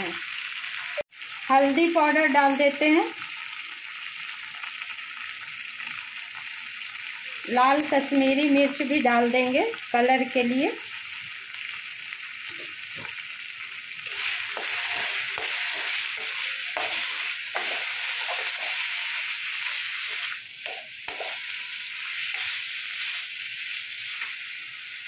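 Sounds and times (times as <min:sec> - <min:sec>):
spices sizzling in oil: 0:00.0 - 0:25.0
spatula scraping pan: 0:14.1 - 0:23.3.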